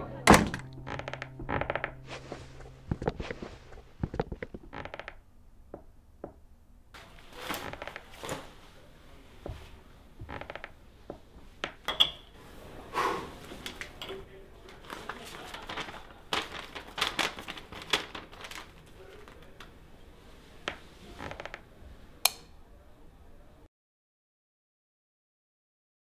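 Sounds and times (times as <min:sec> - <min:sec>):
footsteps on stone floor: 0:00.3 - 0:06.4
nylon jacket rustling: 0:02.0 - 0:04.6.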